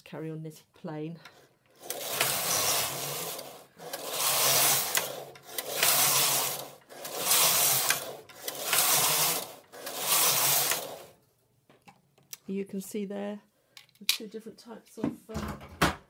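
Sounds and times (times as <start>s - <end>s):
knitting machine carriage rasping: 1.2s - 11.2s.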